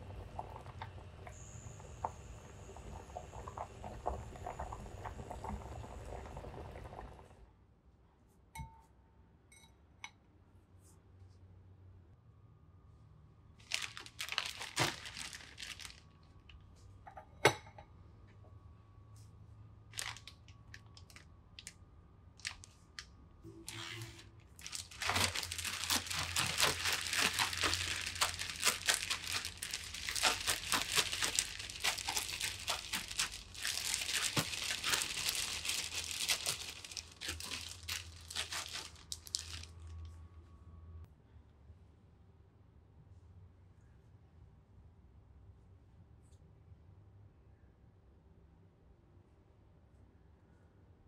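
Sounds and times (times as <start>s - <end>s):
plastic bag crinkling: 13.6s - 16.6s, 19.9s - 21.7s, 22.4s - 39.9s.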